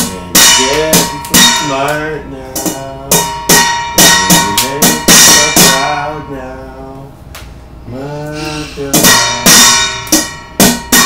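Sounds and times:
utensils clanging on metal bowl: 0.0 - 6.3, 8.3 - 11.0
person singing a wavering note: 4.0 - 7.1, 7.9 - 10.2.

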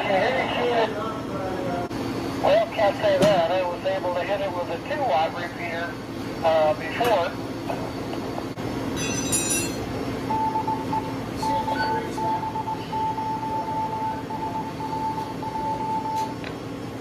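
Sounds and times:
machinery hum: 0.0 - 17.0
electronic beeps: 10.3 - 16.2.

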